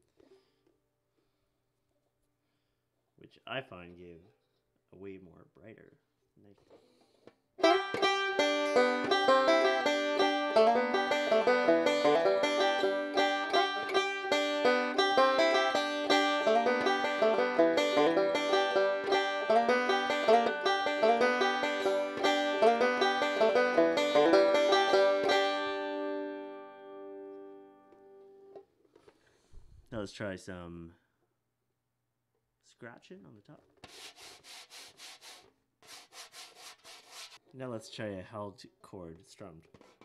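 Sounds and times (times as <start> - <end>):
resonator banjo fingerpicked: 7.6 - 28.0
banjo chord ringing: 7.6 - 28.5.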